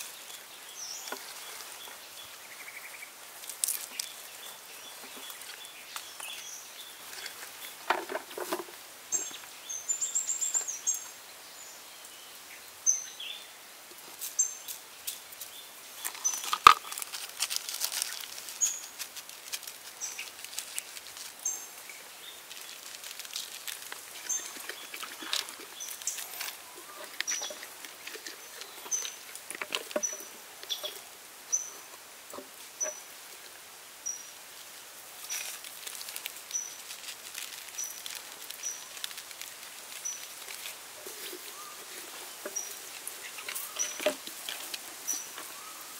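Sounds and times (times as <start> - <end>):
small birds chirping: 0.0 - 45.9
hands handling raw meat: 16.0 - 31.0, 35.2 - 45.6.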